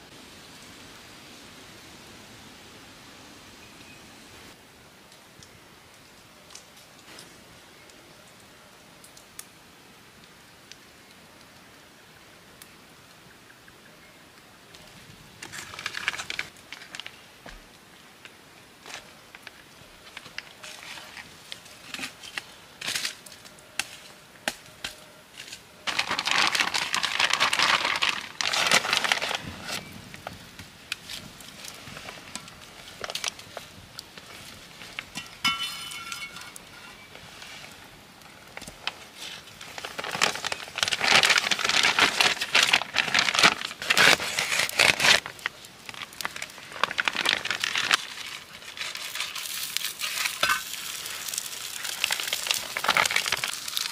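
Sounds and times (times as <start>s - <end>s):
wood fire crackling: 4.5s - 53.9s
logs rustling and crumpling: 14.7s - 53.9s.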